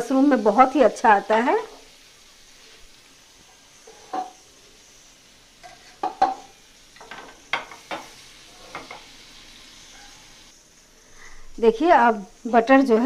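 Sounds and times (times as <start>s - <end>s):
butter sizzling in a pan: 0.0s - 13.0s
utensil scraping a pan: 3.5s - 4.4s, 5.6s - 9.1s.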